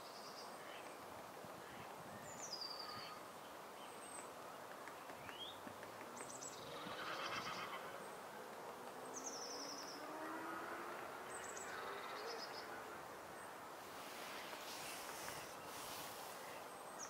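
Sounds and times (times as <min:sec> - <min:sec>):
songbirds singing and calling: 0:00.0 - 0:17.0
outdoor hiss: 0:10.9 - 0:17.0.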